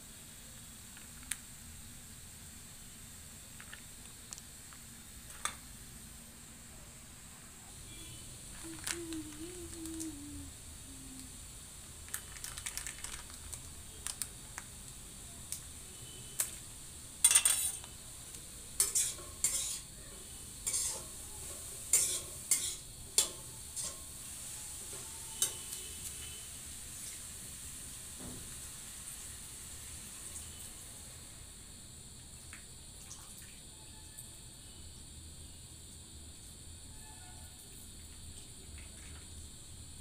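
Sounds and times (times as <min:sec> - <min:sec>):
low sizzle from hot pan: 0:00.0 - 0:40.0
metal spoon scraping a pan: 0:17.2 - 0:17.9, 0:18.8 - 0:19.9, 0:20.6 - 0:21.1, 0:21.9 - 0:24.0.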